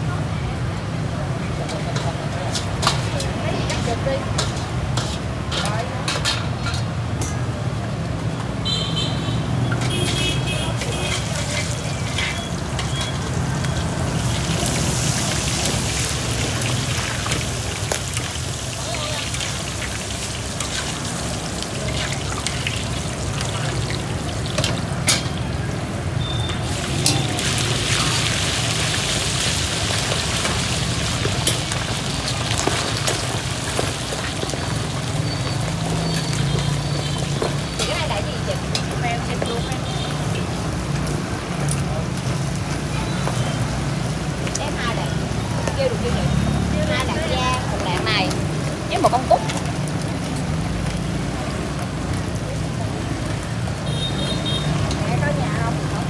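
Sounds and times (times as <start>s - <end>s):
metal tongs clicking on bowls: 9.7s - 13.7s, 24.6s - 25.4s
oil sizzling hiss: 11.0s - 42.9s.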